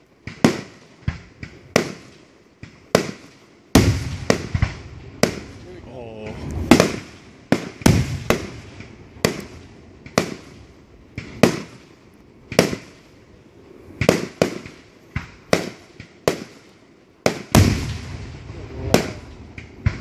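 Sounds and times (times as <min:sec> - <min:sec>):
fireworks booming: 0:00.0 - 0:20.0.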